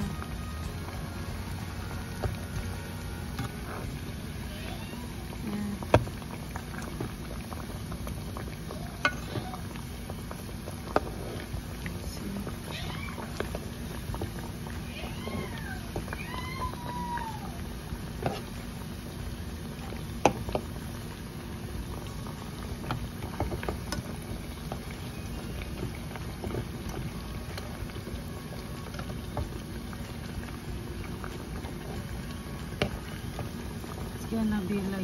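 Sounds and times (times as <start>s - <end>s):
deep-frying sizzle and bubbling: 0.0s - 35.0s.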